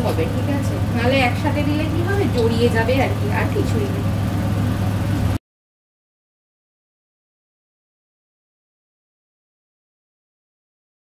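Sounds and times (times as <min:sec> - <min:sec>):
low hum with hiss: 0:00.0 - 0:05.4.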